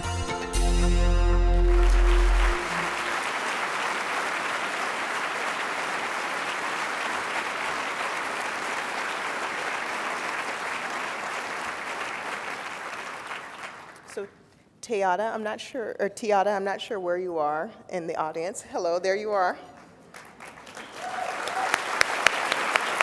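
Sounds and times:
large audience applauding: 0:01.4 - 0:14.1, 0:20.1 - 0:23.0.

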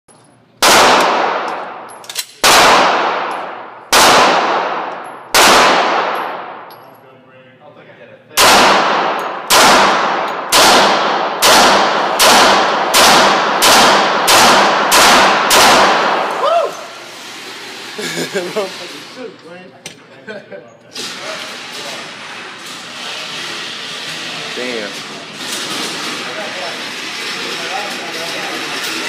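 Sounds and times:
pistol shots echoing indoors: 0:00.6 - 0:06.8, 0:08.4 - 0:16.4.

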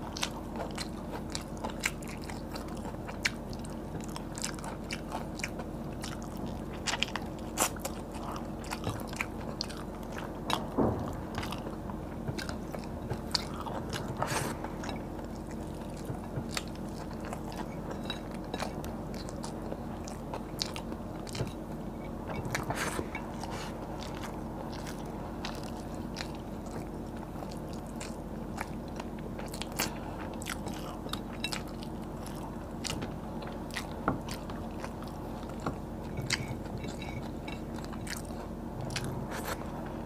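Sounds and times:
person chewing and crunching: 0:00.0 - 0:40.0.

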